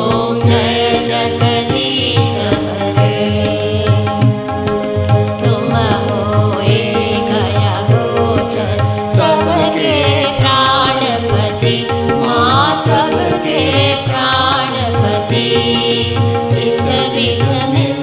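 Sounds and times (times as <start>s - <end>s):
held drone: 0.0s - 18.0s
person singing devotional song: 0.0s - 18.0s
tabla strokes: 0.0s - 18.0s.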